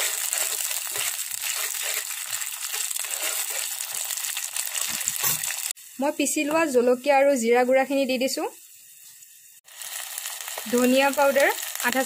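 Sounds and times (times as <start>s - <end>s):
steel spatula scraping and knocking: 0.0s - 4.0s
onion paste sizzling in oil: 0.0s - 12.0s.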